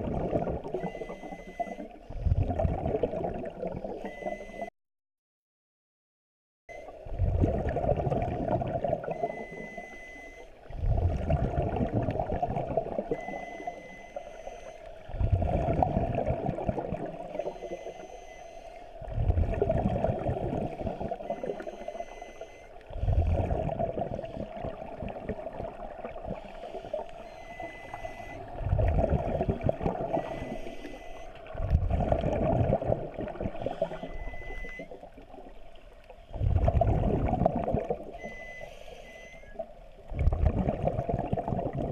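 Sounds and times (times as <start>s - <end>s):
diver exhaling bubbles: 0.0s - 0.8s, 2.1s - 4.4s, 7.1s - 9.6s, 10.7s - 13.5s, 15.1s - 17.5s, 19.0s - 21.7s, 22.9s - 27.0s, 28.5s - 30.9s, 31.5s - 34.6s, 36.3s - 38.2s, 40.1s - 41.9s.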